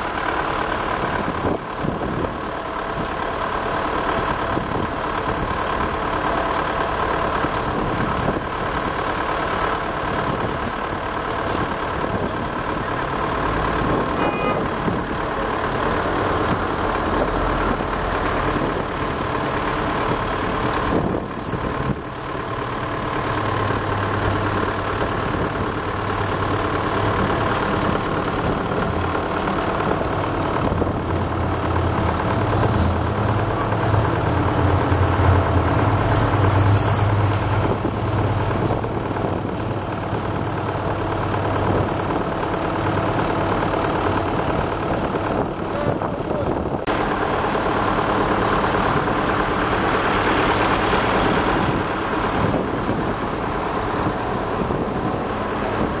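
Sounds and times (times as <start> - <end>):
car and truck engines idling: 0.0 - 56.0.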